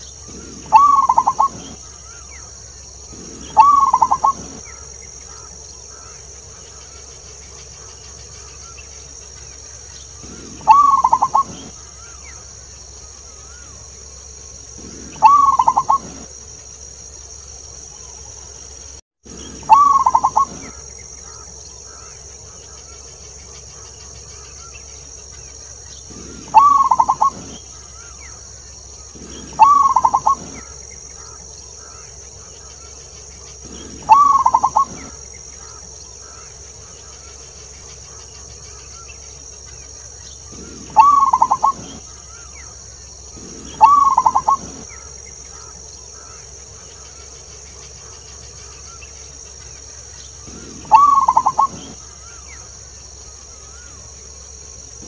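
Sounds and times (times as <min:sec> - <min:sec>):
dove cooing: 0:00.0 - 0:06.2, 0:10.2 - 0:12.2, 0:14.7 - 0:16.3, 0:19.3 - 0:22.1, 0:26.1 - 0:32.1, 0:33.5 - 0:36.5, 0:40.5 - 0:42.7, 0:43.3 - 0:46.3, 0:50.4 - 0:52.4
steady high hiss: 0:00.0 - 0:55.0.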